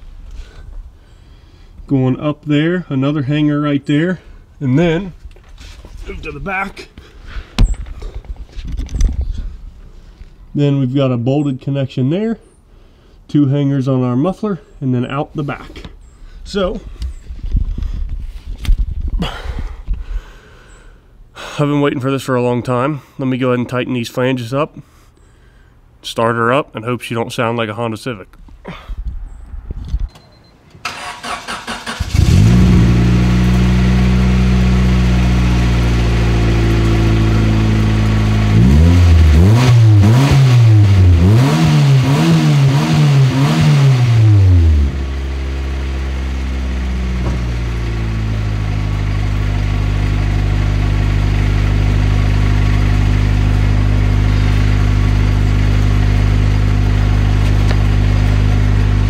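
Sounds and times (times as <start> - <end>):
car engine starting and revving: 30.8 - 59.0.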